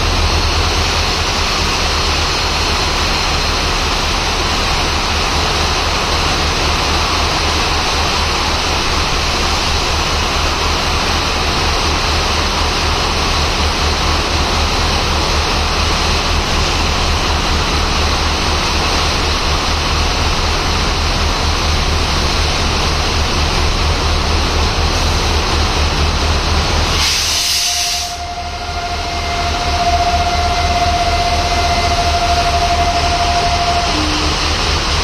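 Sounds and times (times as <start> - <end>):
steady horn note: 27.0 - 34.7.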